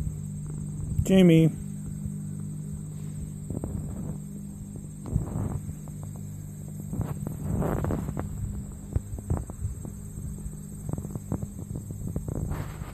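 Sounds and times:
steady low hum: 0:00.0 - 0:12.9.

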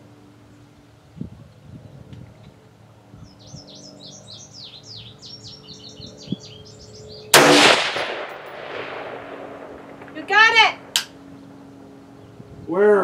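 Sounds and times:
songbird chirping: 0:03.1 - 0:07.4
rifle shot echoing: 0:07.3 - 0:10.3.

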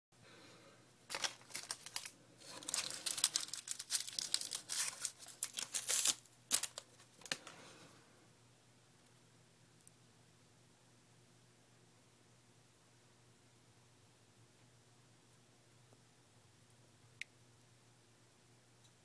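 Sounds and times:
wrapping crinkling and rustling: 0:01.1 - 0:07.6.

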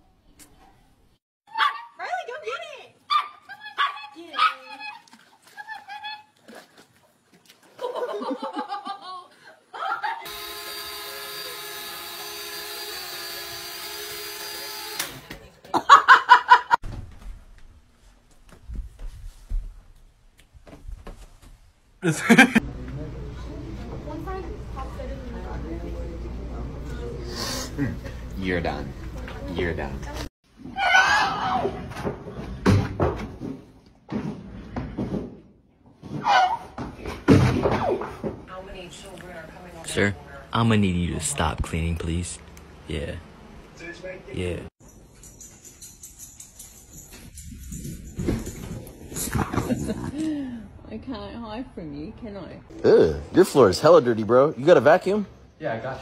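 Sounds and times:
toy drone propellers whining: 0:10.3 - 0:15.2.

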